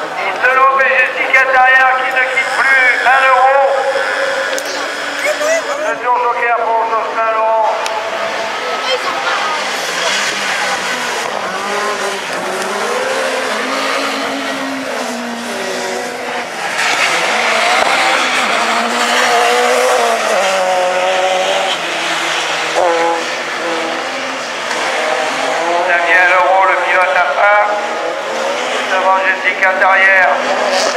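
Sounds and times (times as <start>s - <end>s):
car engine revving hard: 8.0s - 30.9s.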